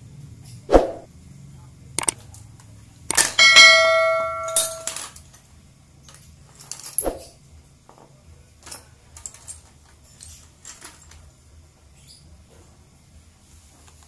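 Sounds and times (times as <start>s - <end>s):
small metal parts clinking: 3.1s - 5.4s, 6.0s - 7.0s, 8.6s - 11.3s.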